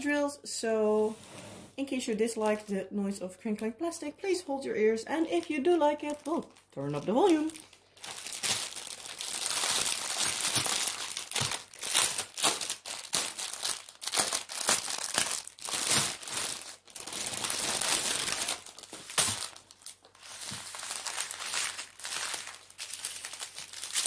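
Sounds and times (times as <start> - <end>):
plastic wrap crinkling: 5.0 - 24.0.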